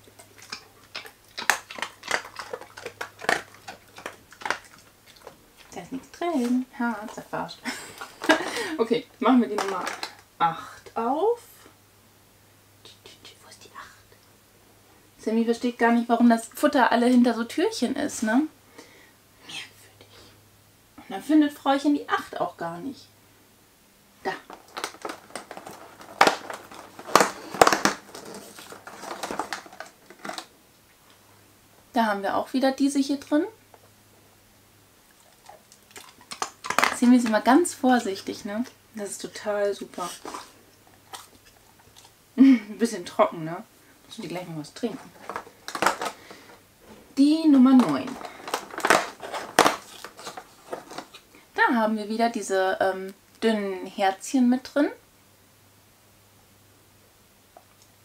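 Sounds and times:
dog crunching treats: 0.0 - 8.7, 9.3 - 10.3, 24.3 - 30.5, 35.1 - 38.7, 39.5 - 42.2, 44.1 - 46.6, 47.5 - 51.3
cardboard crinkling and crackling: 24.3 - 30.5, 35.9 - 37.6, 44.1 - 51.3.

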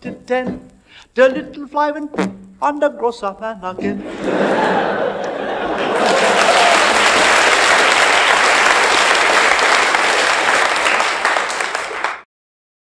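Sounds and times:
audience applauding: 4.2 - 12.3.

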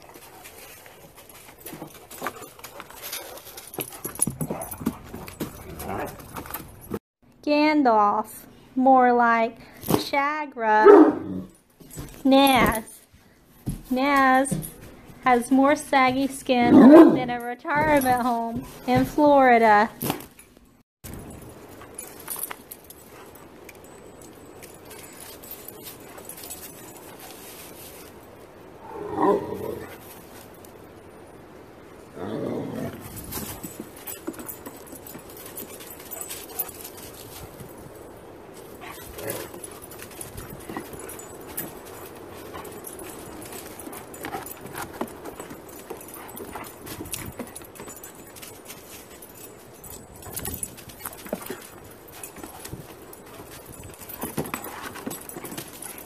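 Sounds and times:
dog collar tags jingling: 0.0 - 7.0, 11.4 - 13.0, 13.6 - 56.0
dry leaves rustling: 24.2 - 30.7, 33.0 - 56.0
dog claws clicking on wooden deck: 38.8 - 49.2.

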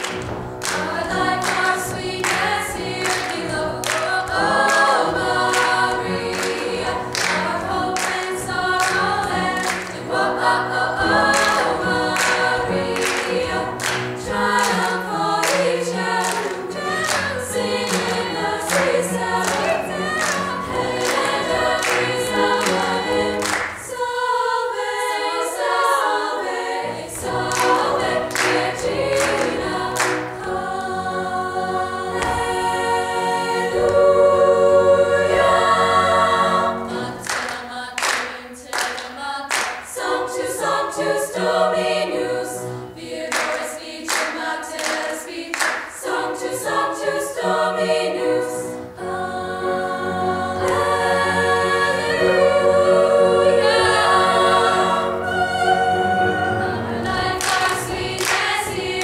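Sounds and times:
people clapping on the beat: 0.0 - 10.3, 11.2 - 24.0, 27.1 - 30.5, 32.2 - 32.7, 37.2 - 41.2, 43.0 - 47.2, 57.0 - 59.0
women's choir singing gospel: 0.0 - 59.0.

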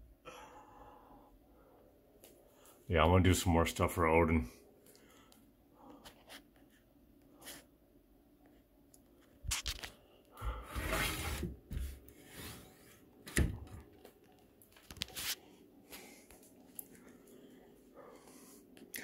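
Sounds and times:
rustling handling noise: 13.9 - 17.3.

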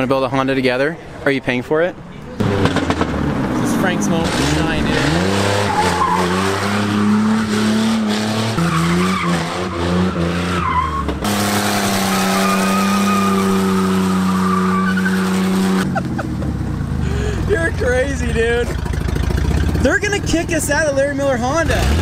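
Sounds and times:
car engine revving: 2.4 - 22.0
tires squealing on wet pavement: 3.5 - 15.9.

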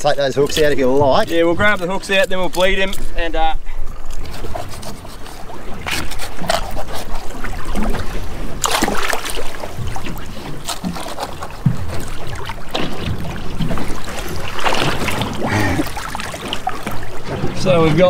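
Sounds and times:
water splashing against boat: 0.0 - 18.0
knocks and rustles: 9.8 - 15.4.

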